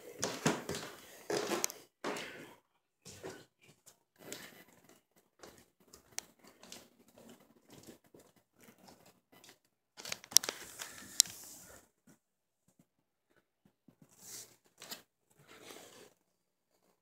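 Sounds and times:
phone handling rustle and crackle: 10.0s - 11.4s.

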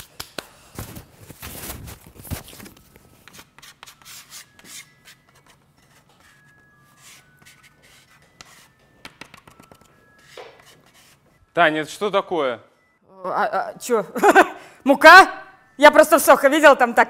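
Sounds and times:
bench scraper scraping countertop: 10.2s - 11.2s.

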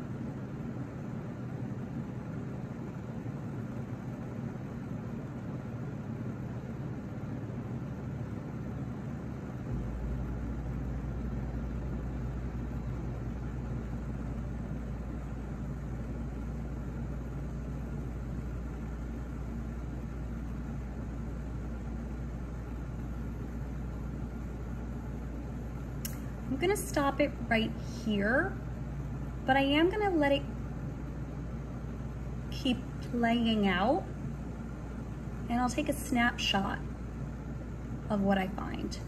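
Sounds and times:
low machine hum with rumble: 0.0s - 39.0s.

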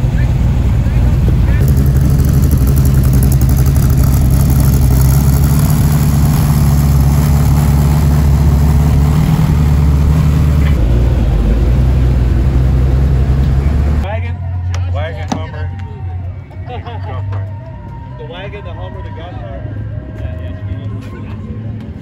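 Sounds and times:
car engine idling: 0.0s - 15.2s.

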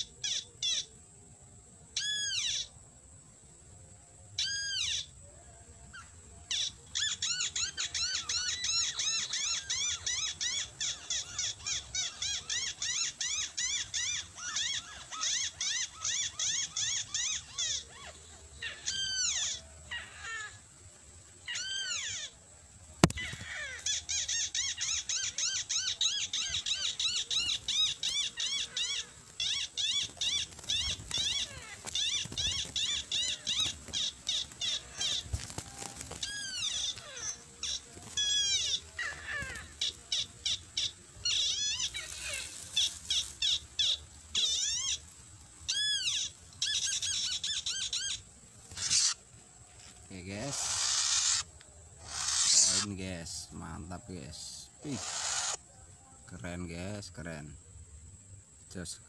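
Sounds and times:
bird whistled calls: 50.5s - 52.9s, 54.8s - 55.6s.

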